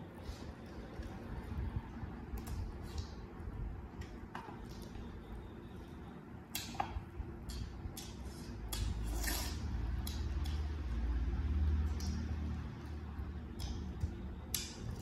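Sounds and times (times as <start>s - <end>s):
fingers and food clicking on plate: 9.9s - 10.8s, 13.4s - 15.0s.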